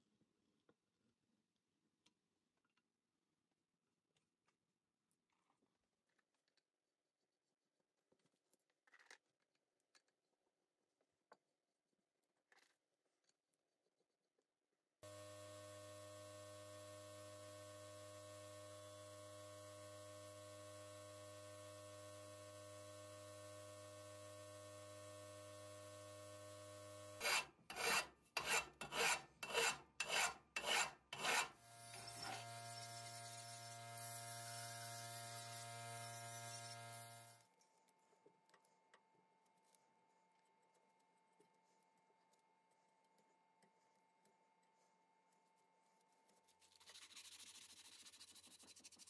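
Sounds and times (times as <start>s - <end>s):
sandblaster motor humming: 31.6s - 37.4s.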